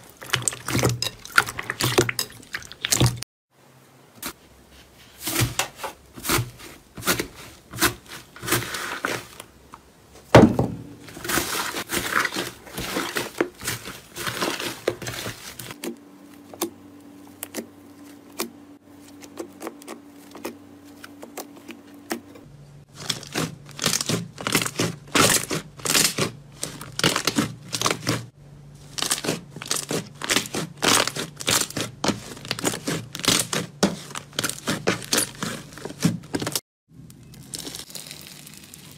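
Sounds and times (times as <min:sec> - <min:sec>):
slime crackling and popping: 0:23.0 - 0:28.2, 0:28.9 - 0:35.4, 0:36.3 - 0:38.9.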